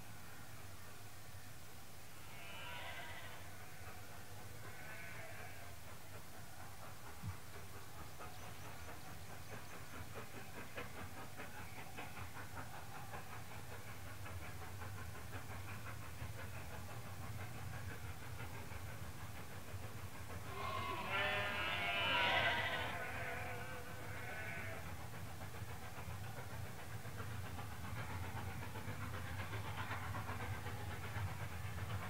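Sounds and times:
distant steam train rumbling: 0.0s - 32.0s
sheep bleating: 20.6s - 23.4s.

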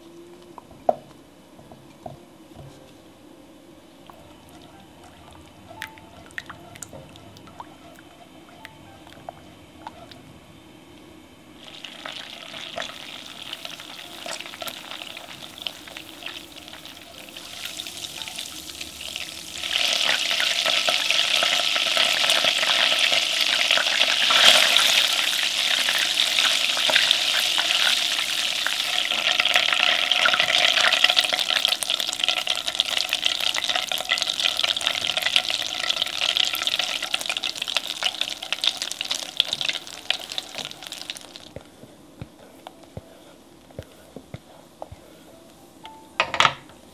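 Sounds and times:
butter sizzling and crackling: 11.6s - 41.6s.

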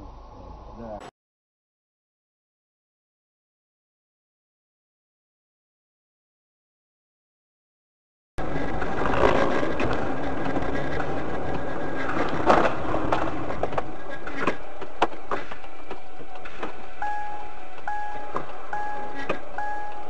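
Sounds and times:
car road and engine noise: 8.4s - 20.0s
two-tone electronic beeping: 17.0s - 20.0s.

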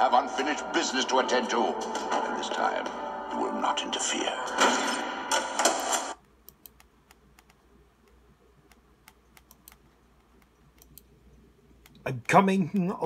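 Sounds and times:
film audio from speakers: 0.0s - 6.2s
computer keyboard typing: 6.4s - 11.1s.

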